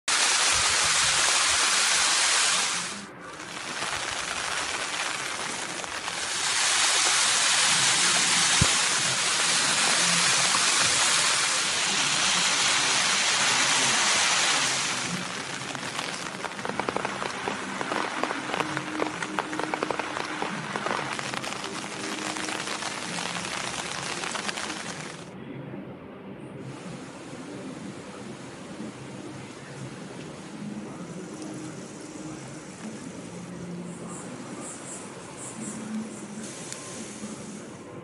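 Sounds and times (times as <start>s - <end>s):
rain falling: 0.0s - 25.3s, 26.8s - 33.6s
faint crackles: 0.1s - 25.3s.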